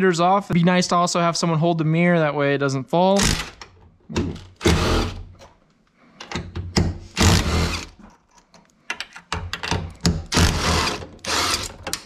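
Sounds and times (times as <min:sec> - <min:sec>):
impact driver bursts: 0:04.6 - 0:05.2, 0:07.0 - 0:07.9, 0:10.3 - 0:11.8.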